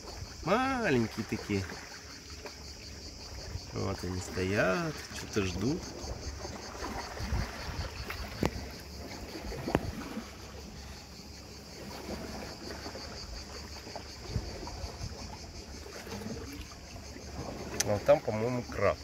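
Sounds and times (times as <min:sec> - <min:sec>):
wind buffeting microphone: 0:05.6 - 0:10.6, 0:14.1 - 0:16.5.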